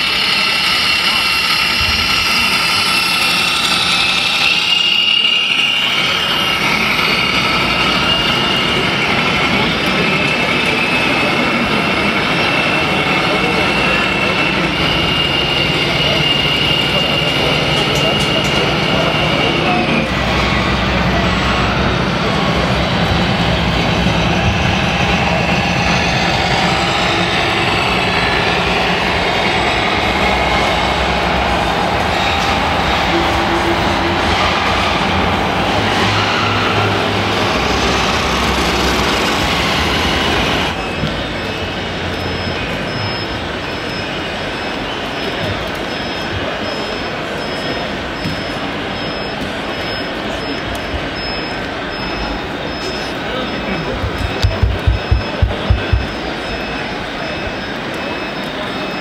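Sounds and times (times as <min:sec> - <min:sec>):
diesel engine running: 0:00.0 - 0:45.3, 0:51.2 - 0:57.4.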